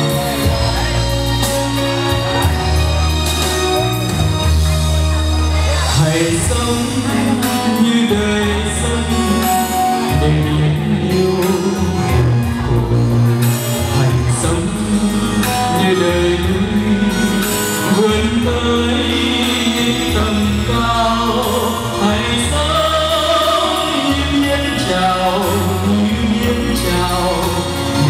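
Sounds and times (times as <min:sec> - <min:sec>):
instrumental accompaniment: 0:00.0 - 0:28.0
man singing a ballad: 0:00.0 - 0:28.0.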